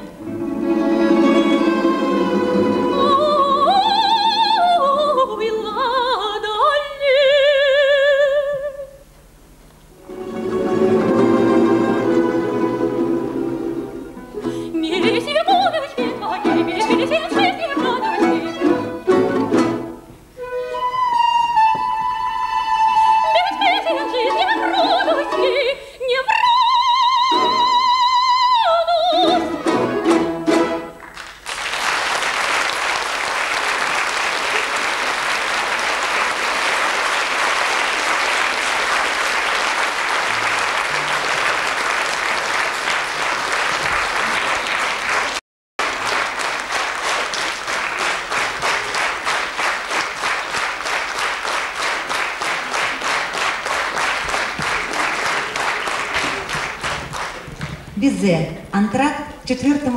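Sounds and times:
folk-instrument orchestra chords: 0.0s - 5.2s, 9.9s - 25.7s, 29.0s - 31.1s
rhythmic clapping in unison: 29.7s - 57.9s
audience applauding: 31.0s - 57.9s.

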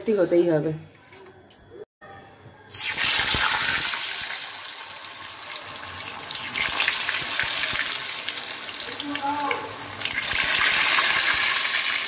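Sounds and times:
potatoes sizzling in hot oil: 2.7s - 12.0s.

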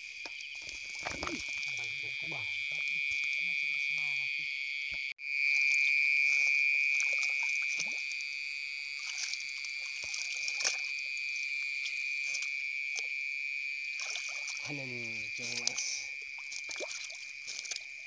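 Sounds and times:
water splashes and drips: 0.0s - 2.4s, 5.4s - 8.2s, 8.9s - 13.2s, 13.8s - 18.0s
frogs calling: 0.0s - 18.0s.

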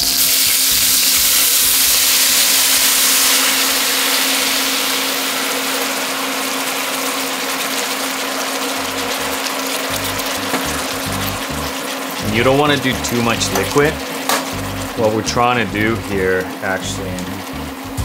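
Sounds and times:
wine hissing and sizzling in pot: 0.0s - 18.0s.

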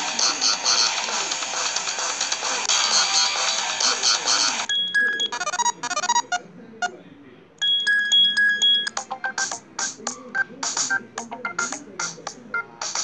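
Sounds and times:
ringtone from tablet speaker: 4.7s - 6.4s, 7.6s - 13.0s.

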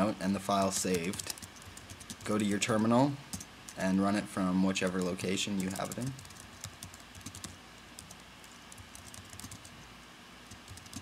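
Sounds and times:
typing on computer keyboard: 0.6s - 2.3s, 4.8s - 9.7s, 10.5s - 11.0s.

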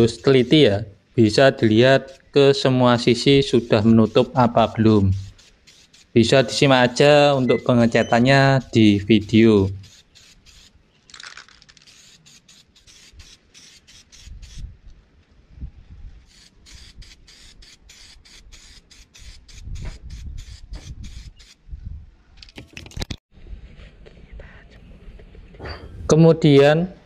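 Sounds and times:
spray paint can hissing in bursts: 0.0s - 0.6s, 2.0s - 2.4s, 3.3s - 7.0s, 8.4s - 14.7s, 16.2s - 21.6s.

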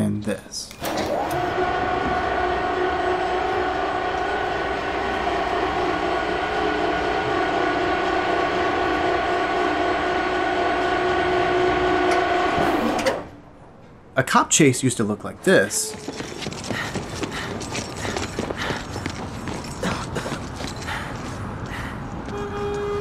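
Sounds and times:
steady horn-like tone: 1.4s - 13.2s, 22.3s - 23.0s.

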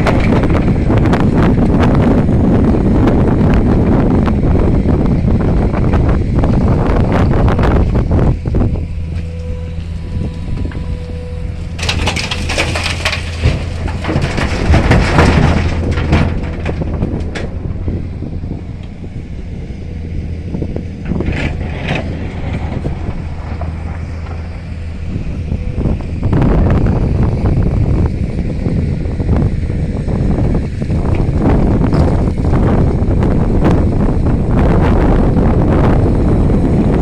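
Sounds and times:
heavy vehicle engine humming: 0.0s - 37.0s
loud rough rushing noise: 0.0s - 37.0s
wind buffeting microphone: 0.0s - 37.0s.

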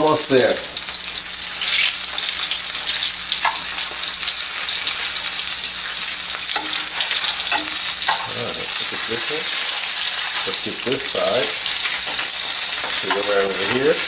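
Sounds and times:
meat sizzling in oil: 0.0s - 14.0s
tongs clicking in pan: 2.1s - 4.0s, 6.3s - 8.3s, 11.6s - 14.0s.

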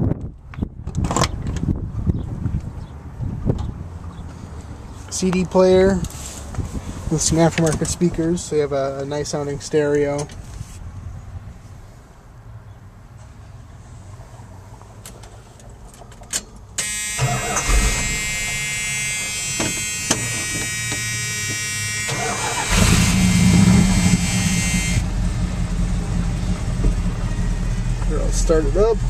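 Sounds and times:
car engine idling: 17.2s - 29.0s
starter motor cranking: 22.1s - 25.0s.

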